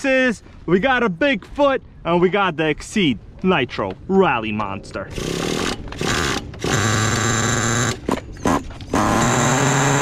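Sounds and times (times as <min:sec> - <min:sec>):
rc car engine cranking: 0:05.1 - 0:10.0
small engine running with whine: 0:05.1 - 0:10.0.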